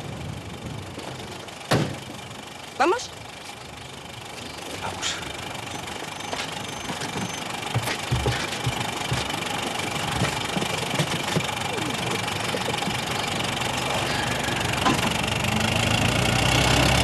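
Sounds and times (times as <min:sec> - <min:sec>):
car engine idling: 0:00.0 - 0:17.0
clicks and low thumps: 0:05.8 - 0:13.4.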